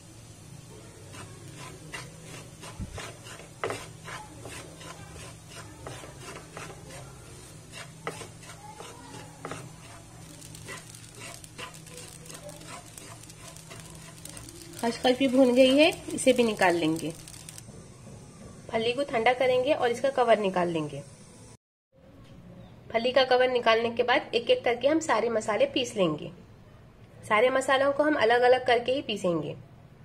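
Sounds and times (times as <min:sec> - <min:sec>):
spatula scraping seeds in pan: 0:00.4 - 0:17.6.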